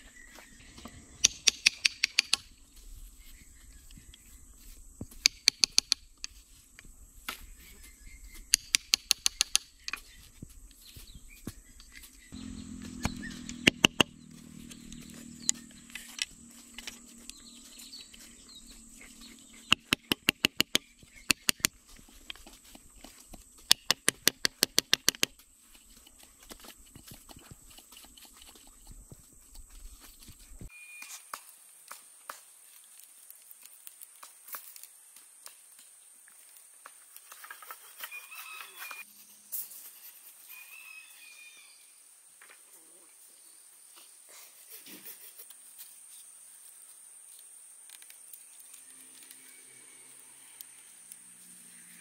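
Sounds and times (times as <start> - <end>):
tool knocking on wood: 13.5 - 14.1.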